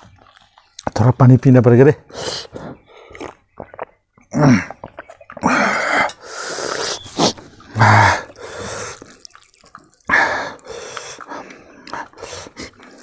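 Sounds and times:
man eating: 0:02.1 - 0:13.0
wet mouth clicks: 0:03.1 - 0:04.0, 0:08.2 - 0:13.0
loud breaths: 0:05.4 - 0:09.1, 0:10.1 - 0:13.0.

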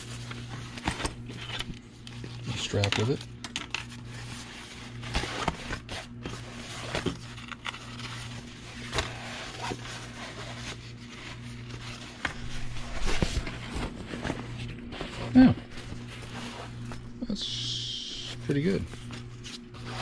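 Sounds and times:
steady low hum: 0:00.0 - 0:20.0
cloth rustling and scraping: 0:04.0 - 0:17.2.

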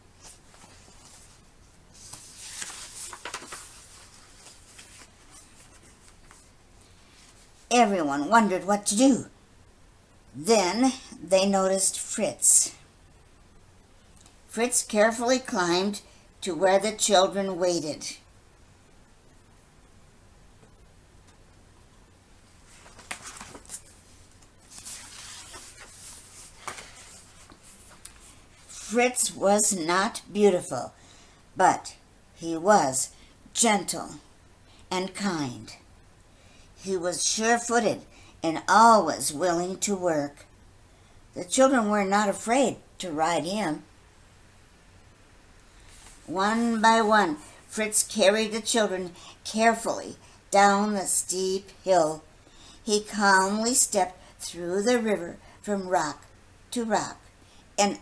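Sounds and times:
book pages turning: 0:00.2 - 0:06.5, 0:22.6 - 0:28.3.

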